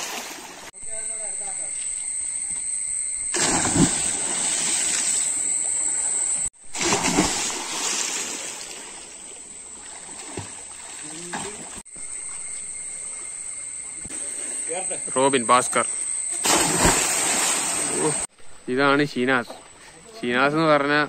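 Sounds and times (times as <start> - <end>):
churning water: 0.0 - 0.7, 3.3 - 11.8
water sloshing as people swim: 0.0 - 0.7, 3.1 - 18.6
loud splash into water: 3.3 - 5.3, 6.7 - 8.8, 16.4 - 18.2.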